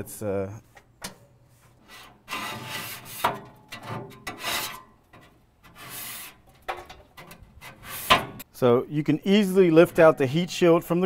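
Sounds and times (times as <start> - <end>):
scraper blade scraping metal: 1.8 - 4.9, 5.6 - 6.5, 7.2 - 8.4.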